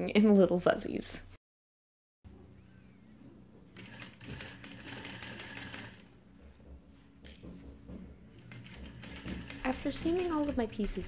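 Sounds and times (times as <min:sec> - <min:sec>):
sewing machine motor hum: 0:03.7 - 0:06.6, 0:07.2 - 0:11.0
sewing machine needle clatter: 0:03.8 - 0:06.0, 0:08.4 - 0:11.0.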